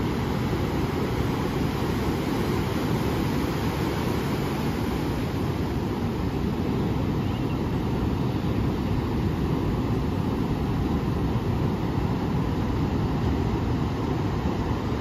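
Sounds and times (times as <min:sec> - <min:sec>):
surf breaking on beach: 0:00.0 - 0:07.0.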